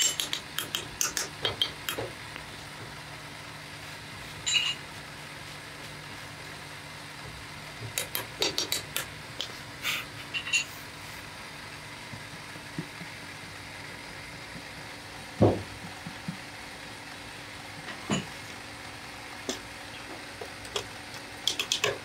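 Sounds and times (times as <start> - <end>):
ringing metal clink: 4.5 - 4.8.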